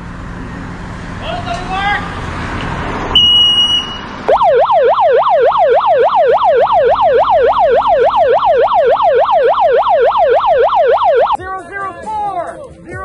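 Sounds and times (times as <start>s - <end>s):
high steady beep: 3.2s - 11.4s
police siren yelping: 4.2s - 11.4s.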